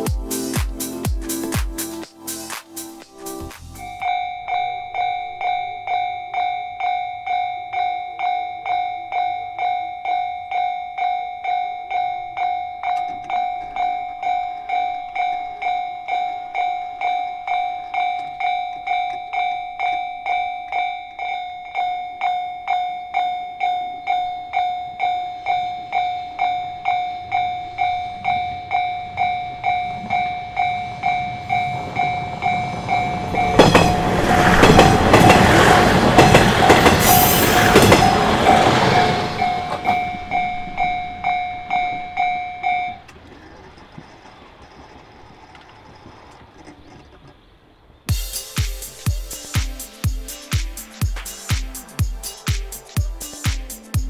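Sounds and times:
train passing with wheel clatter: 0.0 - 49.5
level crossing bell ringing: 3.8 - 35.2, 36.2 - 43.1.

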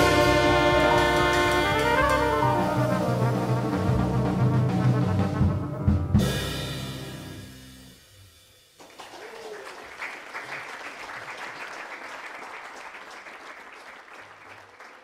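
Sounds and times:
jazz band final chord: 0.0 - 8.0
audience applause: 8.8 - 15.0.

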